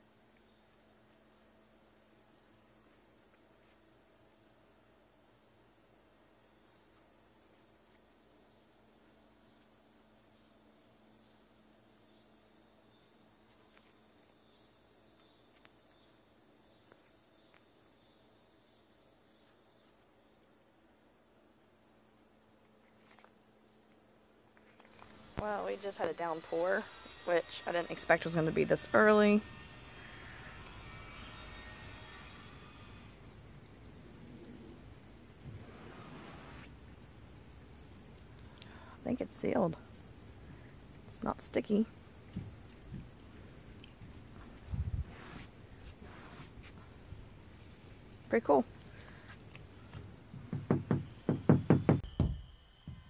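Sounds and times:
faint insect chirping: 0.0 - 53.0.

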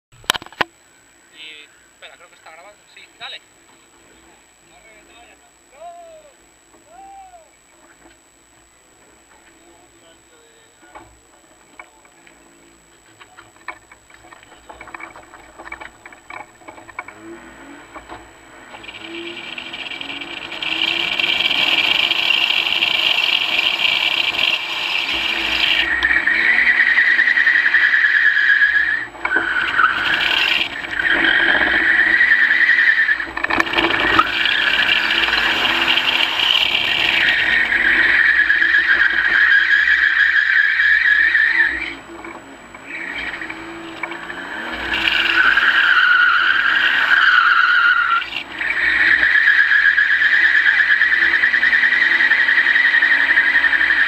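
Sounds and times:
car engine revving: 12.4 - 54.0
tyres squealing: 18.7 - 42.0, 42.8 - 54.0.

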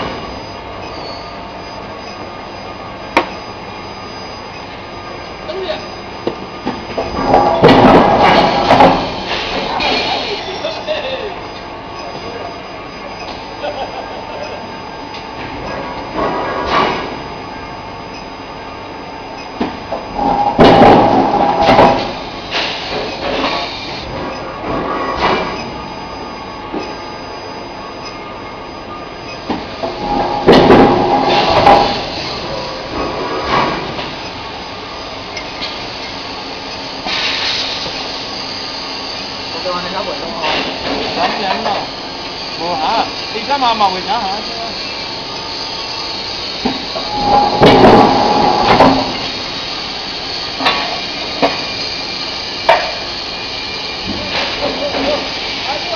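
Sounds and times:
faint high whine: 0.0 - 7.6
furnace line running noise: 0.0 - 55.9
steady machine noise: 0.0 - 55.9.

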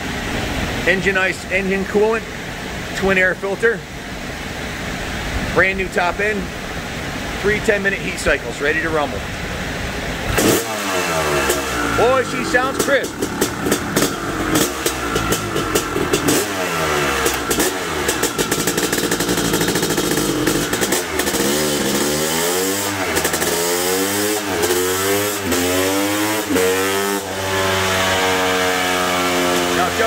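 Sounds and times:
two-stroke engine revving: 10.0 - 30.0.

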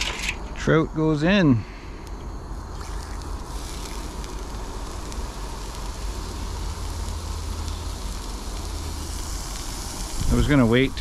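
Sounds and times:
fish sizzling in a skillet: 2.6 - 11.0.

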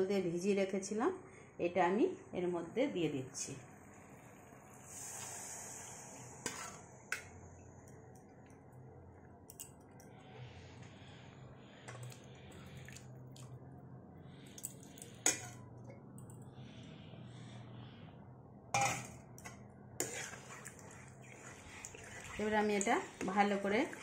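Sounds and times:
soft splashing and squelching: 11.8 - 13.6, 20.0 - 24.0.

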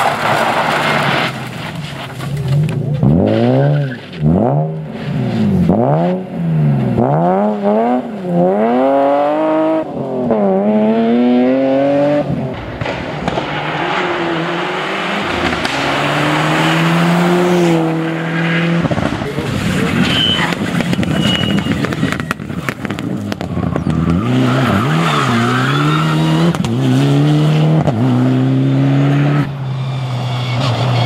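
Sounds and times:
gravel and tyre hiss: 0.0 - 4.2
rally car engine revving: 0.0 - 31.0.

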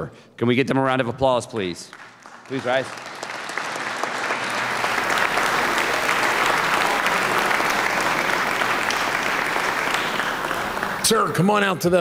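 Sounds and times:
people applauding: 1.9 - 12.0.

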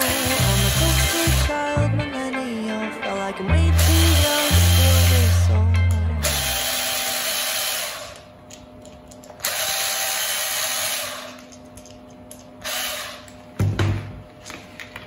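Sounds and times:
cordless drill whirring: 0.0 - 1.5, 3.8 - 5.5, 6.2 - 8.3, 9.4 - 11.5, 12.6 - 13.4.

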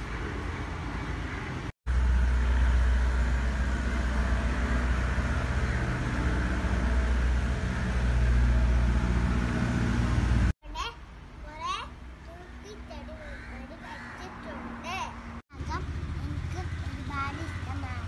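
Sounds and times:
engine running with deep rumble: 0.0 - 10.6, 15.3 - 18.0.

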